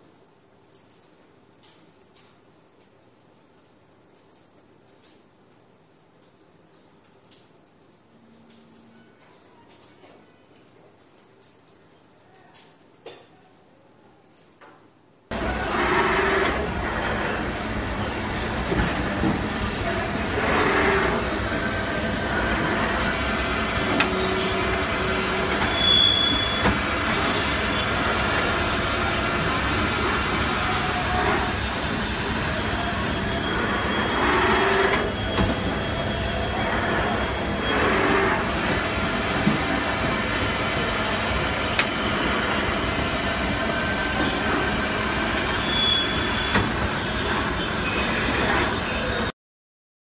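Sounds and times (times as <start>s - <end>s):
high metallic squeals: 15.3s - 49.3s
lathe machinery din with whining: 15.3s - 49.3s.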